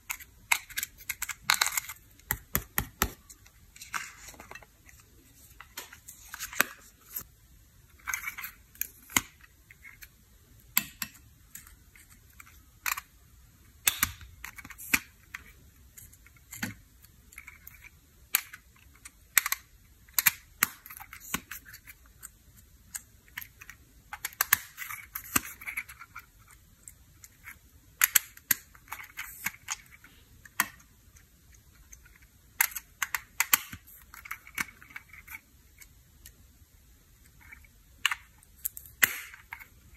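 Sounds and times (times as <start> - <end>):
plastic cases clicking and tapping: 0.1 - 5.0.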